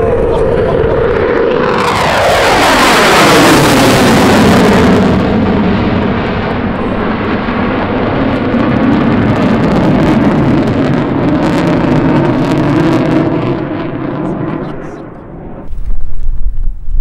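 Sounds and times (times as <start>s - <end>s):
jet afterburner rumble and crackle: 0.0s - 17.0s.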